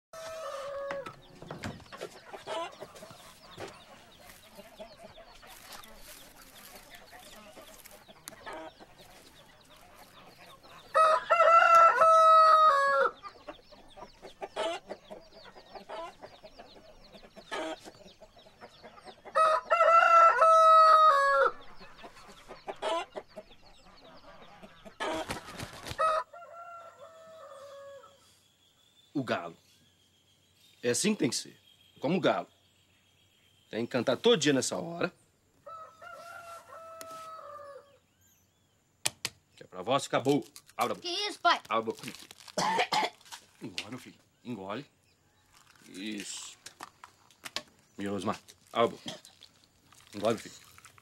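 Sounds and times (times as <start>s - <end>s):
rooster crowing: 0.2s - 1.1s, 10.9s - 13.2s, 19.4s - 21.6s, 26.0s - 28.2s, 35.6s - 38.0s
hens clucking: 0.2s - 20.3s, 21.1s - 26.3s.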